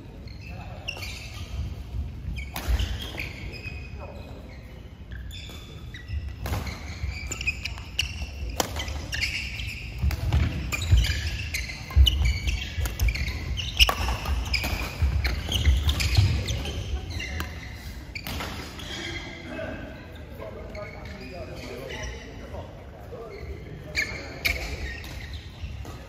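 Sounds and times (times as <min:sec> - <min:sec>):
sneakers squeaking on court: 0:00.0 - 0:19.4, 0:20.1 - 0:26.0
racket hitting shuttlecock: 0:10.0 - 0:16.6.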